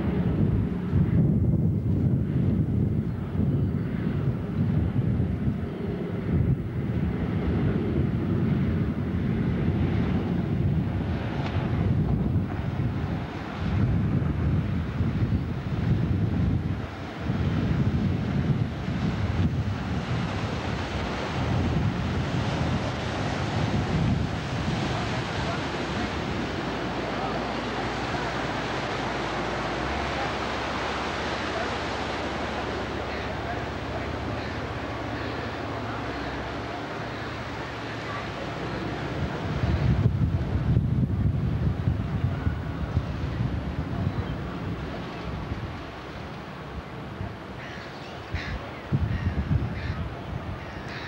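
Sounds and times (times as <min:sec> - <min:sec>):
low engine rumble: 0:00.0 - 0:50.8
wind on microphone: 0:00.0 - 0:51.0
water rushing from boat wash: 0:07.0 - 0:50.9
low engine drone: 0:18.2 - 0:41.2.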